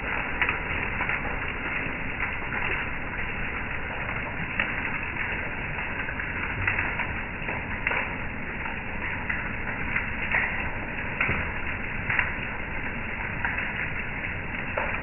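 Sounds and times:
hailstones tapping on wood: 0:00.0 - 0:15.0
heavy rain hissing: 0:00.0 - 0:15.0.

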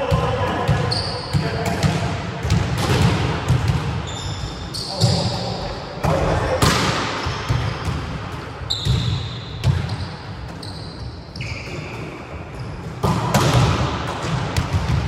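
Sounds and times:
volleyballs struck by hand: 0:01.4 - 0:04.0, 0:12.9 - 0:15.0.

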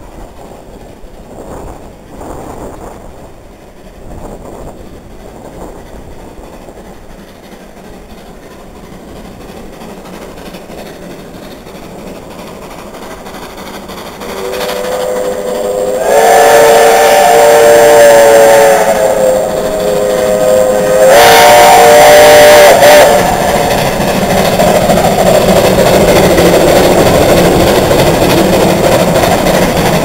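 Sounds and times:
steam locomotive exhaust chuffing: 0:00.0 - 0:30.0
steam whistle blowing: 0:14.2 - 0:23.9.

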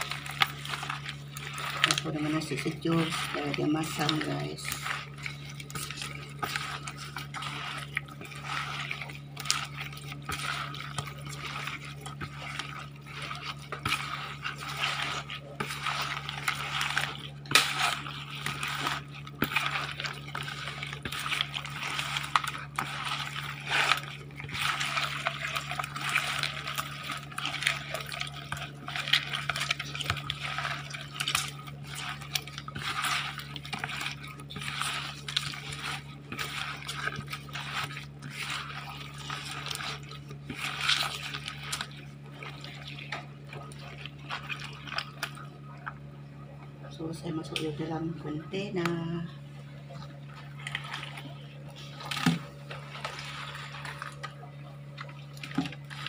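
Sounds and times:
wet squishing of fish and rice: 0:00.0 - 0:56.0.

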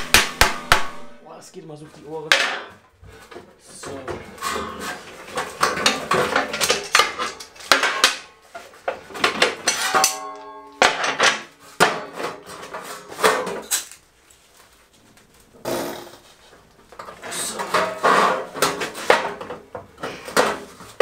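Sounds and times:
hammer clanging on sheet metal: 0:00.0 - 0:01.2, 0:02.2 - 0:02.8, 0:04.3 - 0:08.4, 0:09.2 - 0:13.7.

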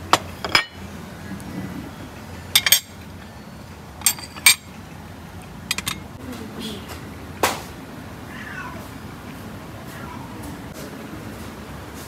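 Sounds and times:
china plates clinking on table: 0:00.1 - 0:00.8, 0:02.5 - 0:03.0, 0:04.0 - 0:04.7, 0:05.7 - 0:06.1.

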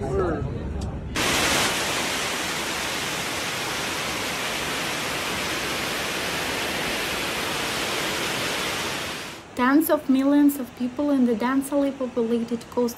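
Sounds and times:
floodwater rushing: 0:01.2 - 0:09.4.

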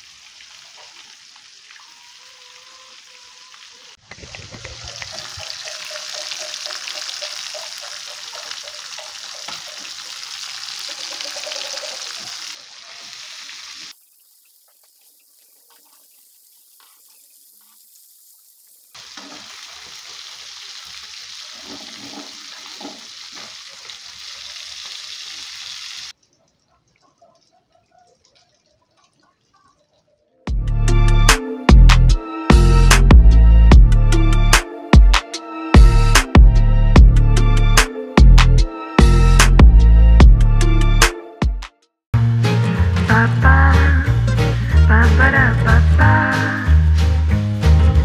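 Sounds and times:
fish frying in hot oil: 0:04.2 - 0:26.2.

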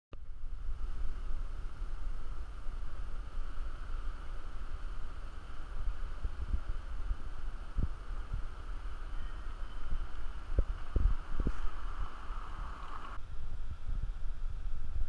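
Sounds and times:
wind buffeting the microphone: 0:00.2 - 0:15.0
surf hissing: 0:00.3 - 0:13.2.

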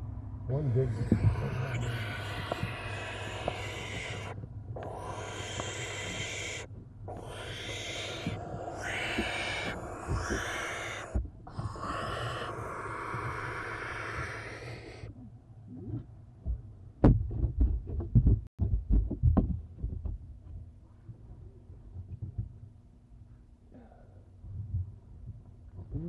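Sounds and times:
owl nestlings hissing: 0:00.5 - 0:15.1.

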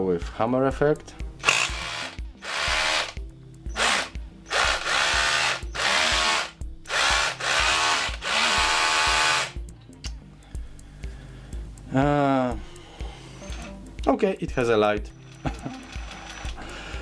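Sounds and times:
cordless drill motor whine: 0:03.7 - 0:09.5.

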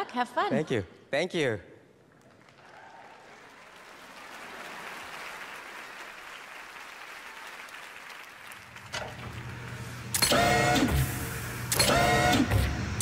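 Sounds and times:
audience applauding: 0:02.1 - 0:09.8.

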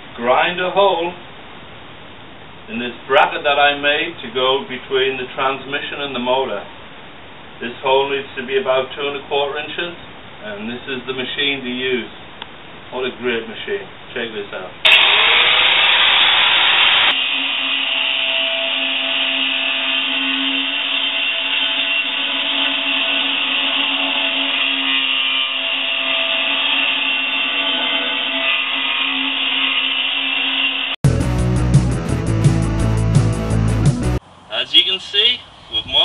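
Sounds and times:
angle grinder grinding steel: 0:14.8 - 0:31.0
guitar music: 0:31.0 - 0:34.2.

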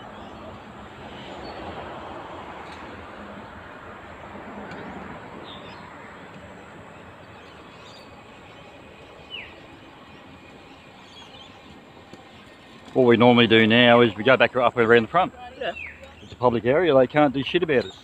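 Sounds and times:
distant road noise: 0:00.0 - 0:18.0.

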